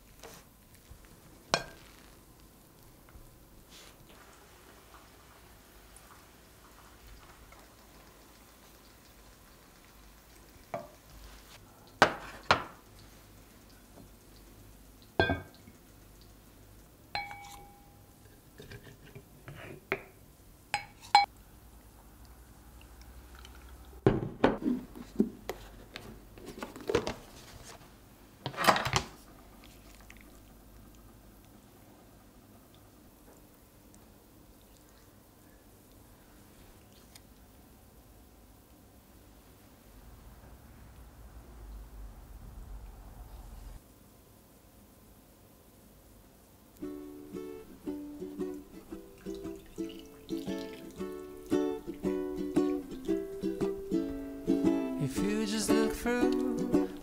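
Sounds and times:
dishes and glassware clinking: 15.2 - 15.6, 17.2 - 18.0, 20.8 - 21.3.

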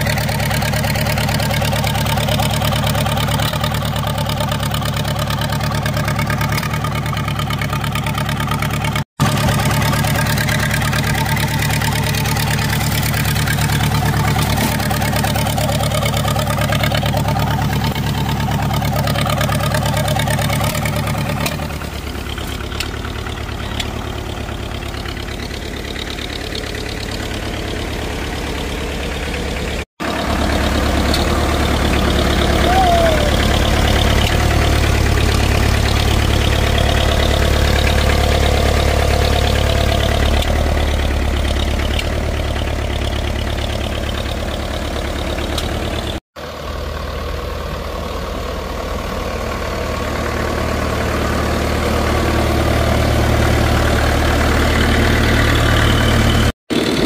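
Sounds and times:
diesel engine idling: 0.0 - 57.0.

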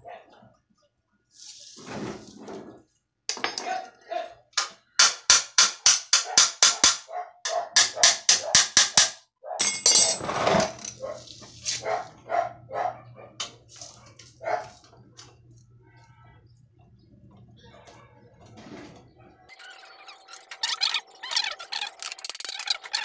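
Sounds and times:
dog barking: 0.0 - 0.5, 3.6 - 4.4, 6.2 - 8.8, 9.4 - 9.7, 11.0 - 14.9.

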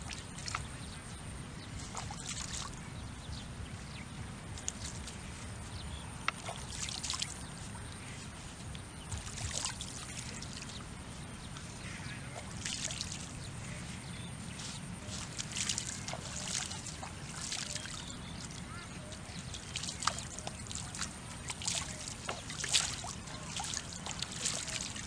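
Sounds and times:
hands splashing in muddy water: 6.3 - 7.5, 9.1 - 10.7, 11.8 - 13.4, 15.0 - 25.0.

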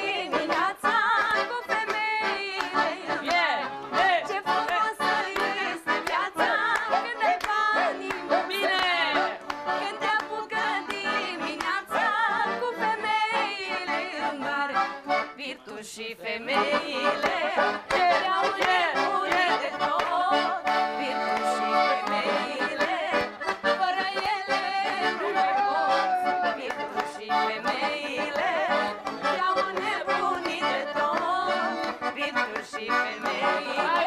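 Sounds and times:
accordion folk tune: 0.0 - 34.0
person singing: 15.4 - 34.0.

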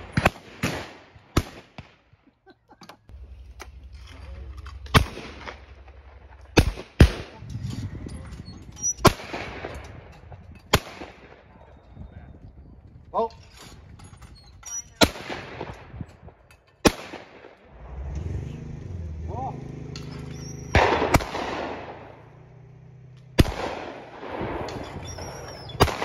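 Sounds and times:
shotgun shots: 0.0 - 2.1, 4.7 - 7.4, 9.0 - 10.1, 10.7 - 11.5, 15.0 - 16.0, 16.8 - 17.7, 20.4 - 22.4, 23.3 - 26.0.

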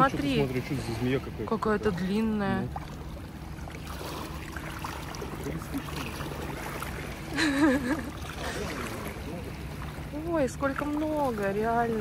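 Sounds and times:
water sloshing against rocks: 0.0 - 12.0.

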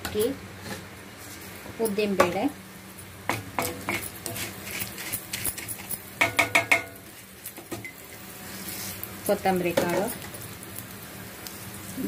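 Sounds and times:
wooden spatula scraping griddle: 3.6 - 6.0.

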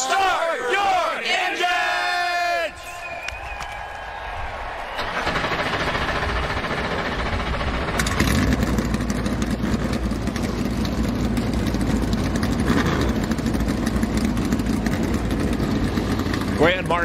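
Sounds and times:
race car engines idling: 5.0 - 17.0.

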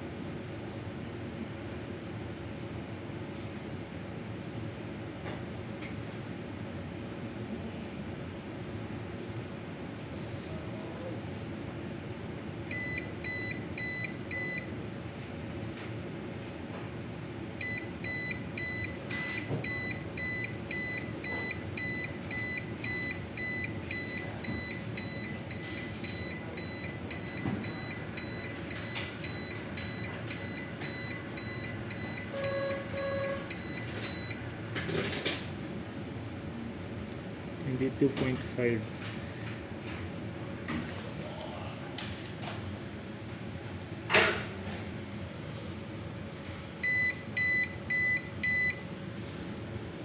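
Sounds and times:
electrical hum: 0.0 - 50.0
alarm beeping: 17.6 - 34.4.

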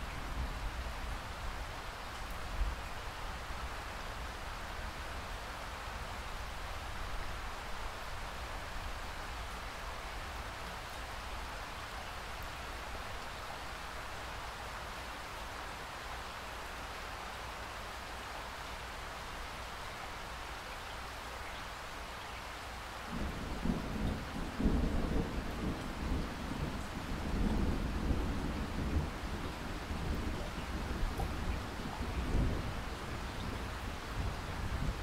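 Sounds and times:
rain falling: 0.0 - 35.0
thunder rumbling: 23.1 - 35.0.

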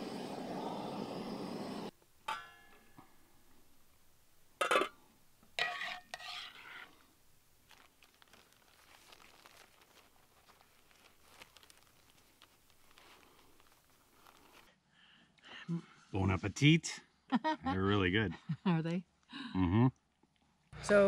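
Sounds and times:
rustling and scraping: 5.6 - 14.7
plastic bag handling: 7.6 - 14.7.

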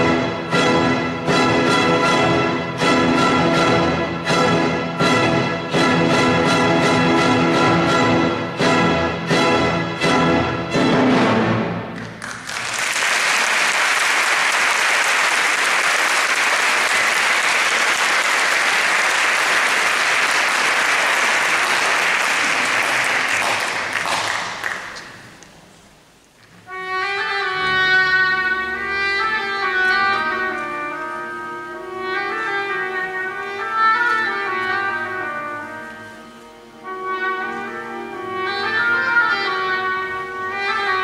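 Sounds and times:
orchestra playing: 0.0 - 25.4, 26.6 - 41.0
audience applauding: 12.0 - 25.4.

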